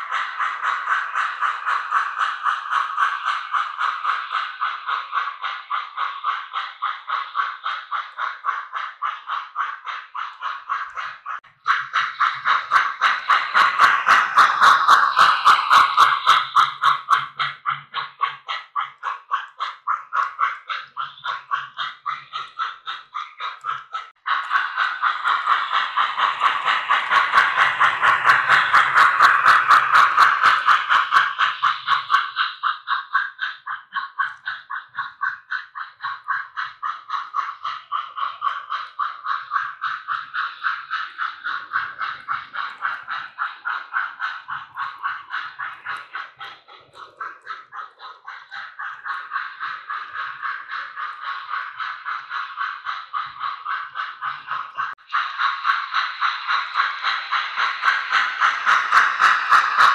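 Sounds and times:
model steam locomotive chuffing: 0.0 - 59.9.

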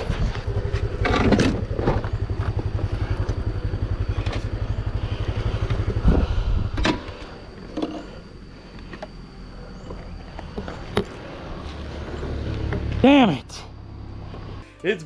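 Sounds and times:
scooter engine idling: 0.0 - 12.9.

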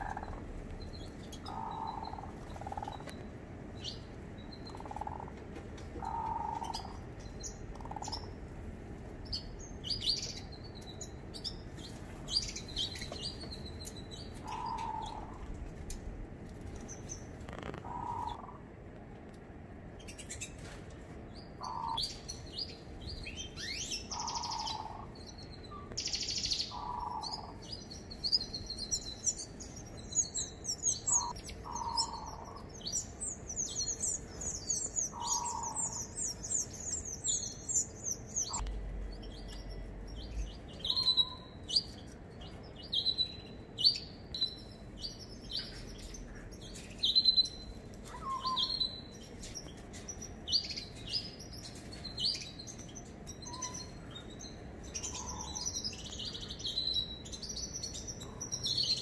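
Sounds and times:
fast high trilling birdsong: 0.0 - 5.3, 21.4 - 46.3, 47.0 - 59.0
small birds chirping: 0.0 - 59.0.

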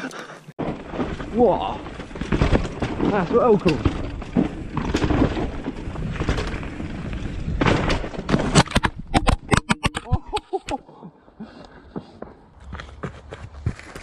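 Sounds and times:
bike tyre rumble on dirt: 0.6 - 9.2, 12.5 - 14.0
bike crash thuds and clatters: 0.6 - 10.1.

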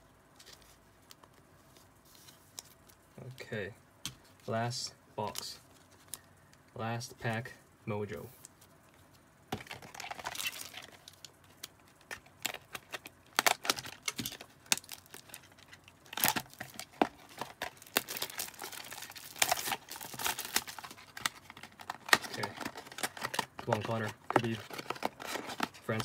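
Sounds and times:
plastic wrap crackling and tearing: 9.5 - 26.0.

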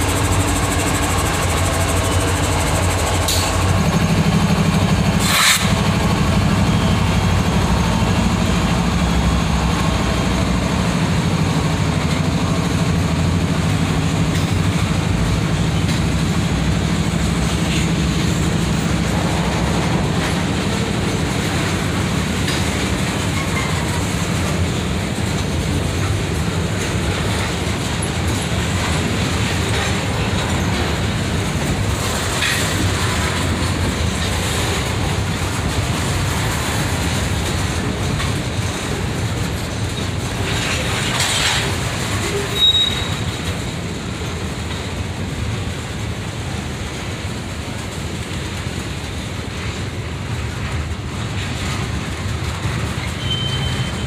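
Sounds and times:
train wheels rumbling on rail: 0.0 - 54.0
high wheel squeal: 42.3 - 43.5, 53.0 - 54.0.

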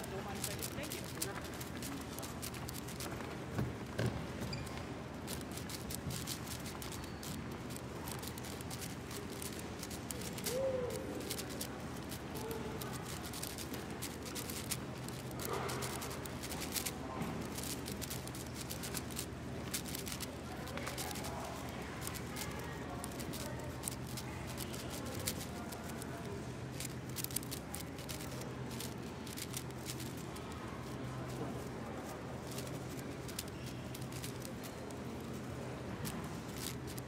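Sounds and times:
faint voices chattering: 0.0 - 37.0
puzzle cube clicking: 5.3 - 12.2, 17.5 - 26.0, 26.7 - 30.2.

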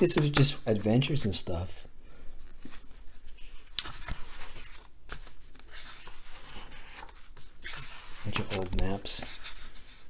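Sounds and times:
paper pages rustling: 2.4 - 10.0.

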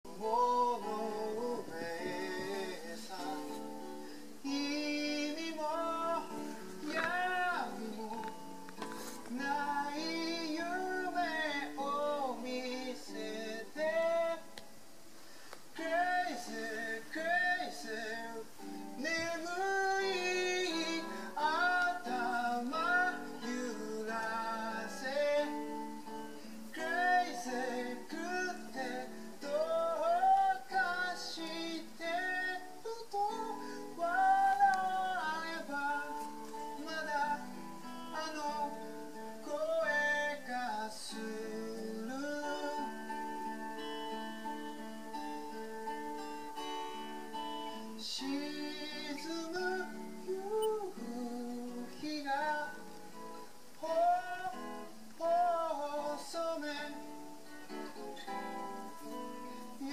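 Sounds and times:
voices singing: 0.0 - 14.7, 15.7 - 43.1
acoustic guitar: 0.0 - 59.9.

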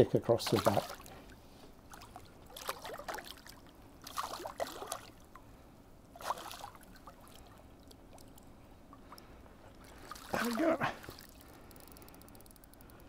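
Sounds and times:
fish splashing at water surface: 0.5 - 1.1, 1.9 - 5.2, 6.2 - 8.4.

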